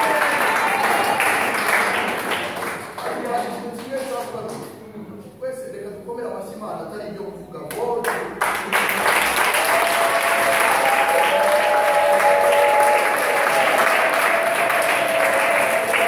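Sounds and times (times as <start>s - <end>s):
crowd clapping: 0.0s - 4.1s, 7.7s - 16.0s.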